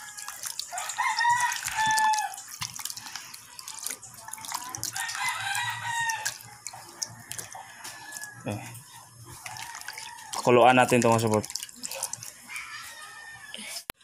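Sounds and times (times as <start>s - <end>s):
rooster crowing: 0.0s - 2.4s, 4.9s - 6.4s, 7.1s - 8.6s, 9.5s - 10.5s, 12.5s - 13.8s
water sloshing and splashing: 0.0s - 13.4s.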